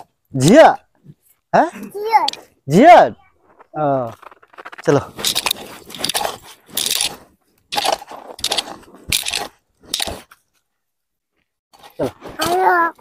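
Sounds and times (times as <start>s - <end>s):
hand hoe scraping dry soil: 3.4s - 10.4s.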